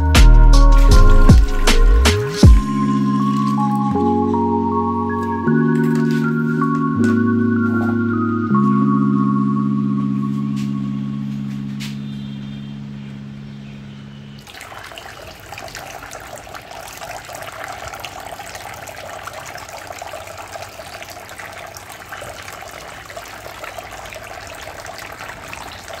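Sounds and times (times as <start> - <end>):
water splashing and trickling: 0.0 - 9.2, 14.2 - 26.0
background music: 0.0 - 12.2.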